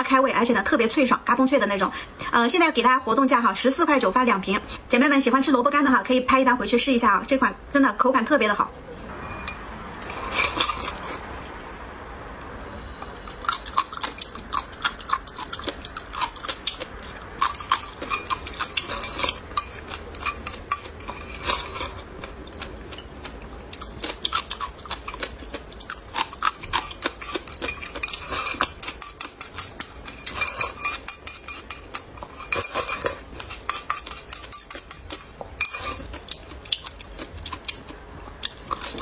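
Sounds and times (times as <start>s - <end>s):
chewing: 10.1s - 11.2s, 13.2s - 39.0s.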